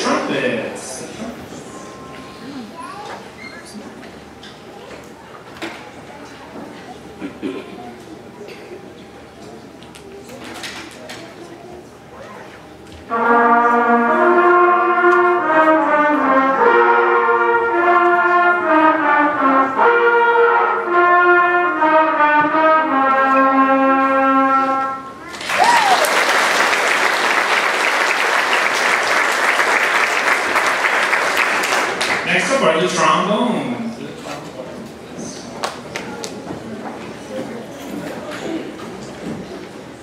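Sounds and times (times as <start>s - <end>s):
school brass band playing: 0.0s - 1.0s, 13.0s - 25.2s, 26.2s - 33.8s
audience applauding: 25.3s - 32.6s.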